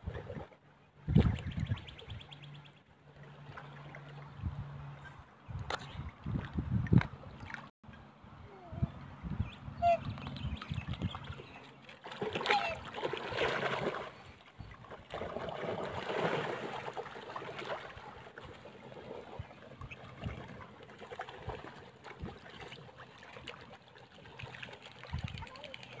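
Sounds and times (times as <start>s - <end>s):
birds splashing in water: 0.0s - 6.2s, 9.8s - 26.0s
water lapping at rocky shore: 9.8s - 26.0s.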